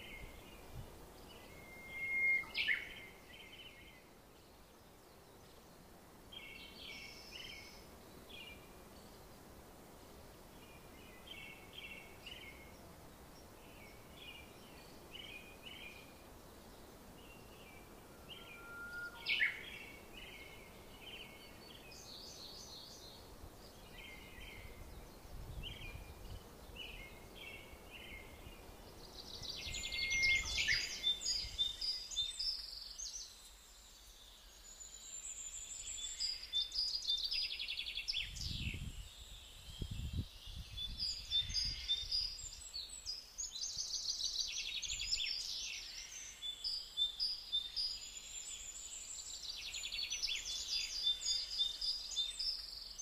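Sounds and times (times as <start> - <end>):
faint steady hiss: 0.0 - 53.0
songbirds chirping and trilling: 0.0 - 53.0.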